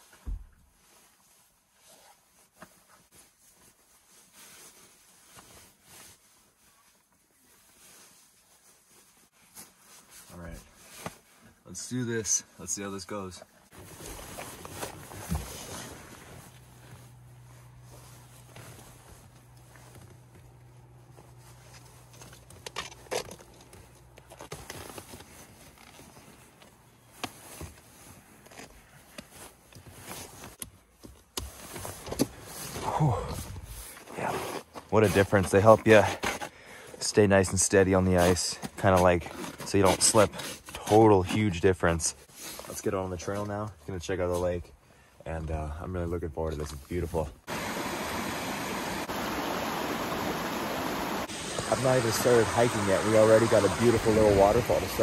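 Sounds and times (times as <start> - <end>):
rustling of puffy jacket: 0.0 - 12.0, 13.6 - 22.5, 23.5 - 36.1.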